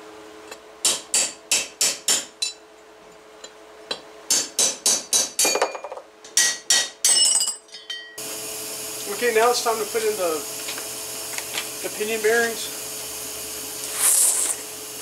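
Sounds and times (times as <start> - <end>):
hammer striking steel punch: 0.8 - 2.6, 4.3 - 5.6.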